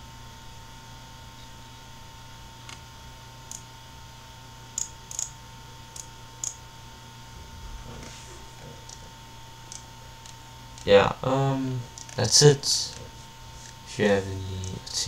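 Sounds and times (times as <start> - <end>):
steady electrical hum: 0.0 - 15.0
computer mouse clicks: 12.0 - 12.2.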